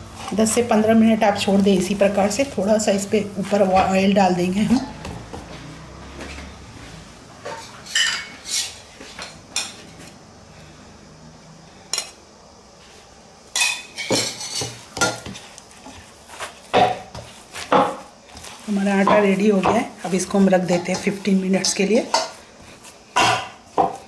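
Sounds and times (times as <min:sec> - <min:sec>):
metal bowl clanking and scraping: 0:07.4 - 0:09.8, 0:13.6 - 0:15.2.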